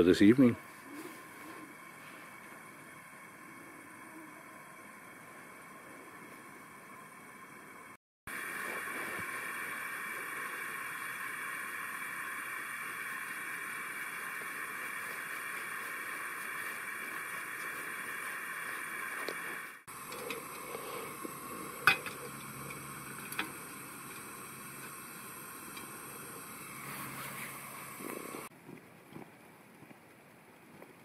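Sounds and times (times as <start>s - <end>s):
propane burner hissing: 0.0s - 28.5s
camping stove burning: 0.0s - 31.0s.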